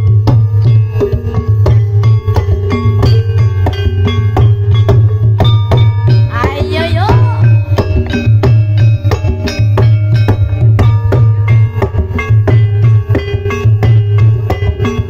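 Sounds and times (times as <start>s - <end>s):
gamelan music: 0.0s - 15.0s
hand drums: 0.0s - 15.0s.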